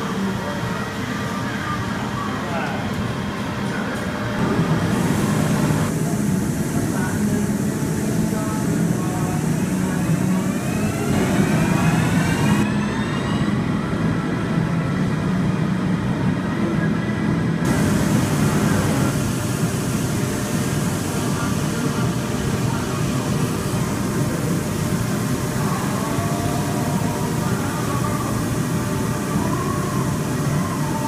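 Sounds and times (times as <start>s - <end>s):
lathe running: 4.4s - 14.1s
machine whine shifting pitch: 4.4s - 15.1s.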